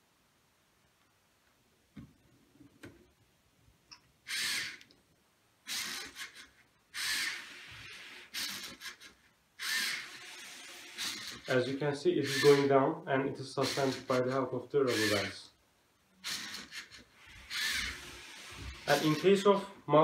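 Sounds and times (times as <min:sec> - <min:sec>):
motors whirring in bursts: 0:05.7 - 0:11.5, 0:12.2 - 0:12.7, 0:13.6 - 0:14.2, 0:14.9 - 0:15.3, 0:16.2 - 0:19.4.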